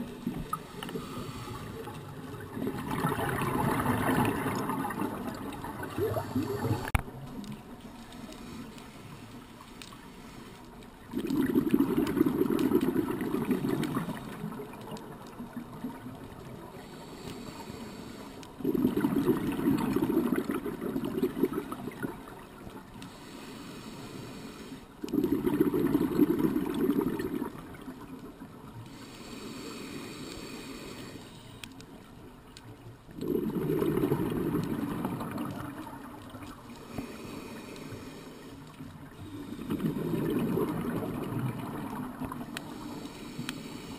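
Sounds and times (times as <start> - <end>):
gurgling exhaust bubbles: 2.4 - 7.0, 11.1 - 14.4, 18.6 - 22.1, 25.0 - 27.7, 33.2 - 36.0, 39.6 - 42.4.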